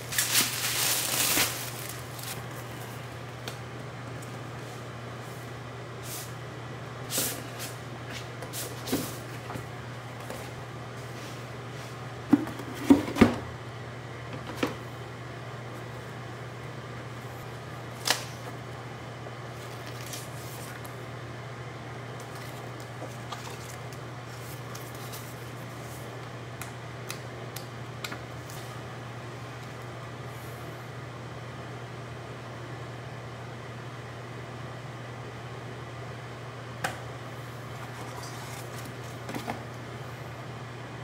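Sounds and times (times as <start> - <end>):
steady low hum: 0.0 - 41.0.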